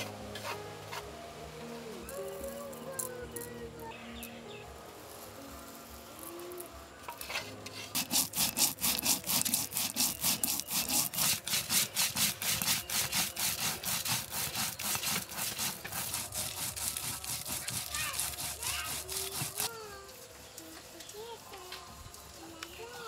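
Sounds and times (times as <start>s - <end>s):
hand tool scraping hard material: 0.0s - 1.1s, 7.1s - 19.7s.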